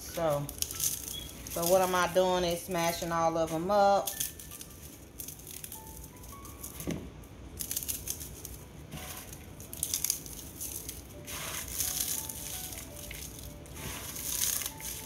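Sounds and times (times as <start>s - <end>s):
rice cakes crunching: 0.4s - 2.2s, 4.0s - 6.2s, 7.5s - 15.0s.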